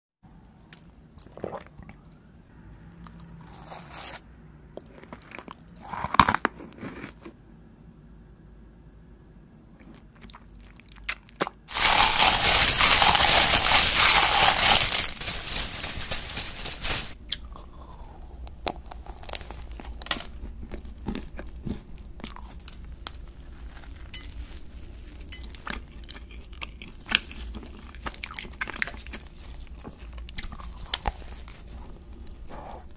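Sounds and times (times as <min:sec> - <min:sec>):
biting and chewing: 0:10.2 - 0:15.2.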